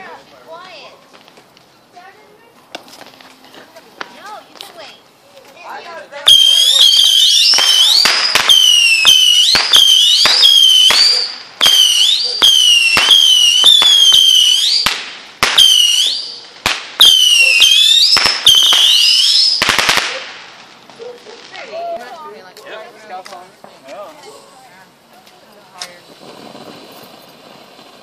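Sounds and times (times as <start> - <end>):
whistling fireworks popping: 6.3 - 21.9, 25.7 - 28.0
hissing crackle: 25.3 - 28.0.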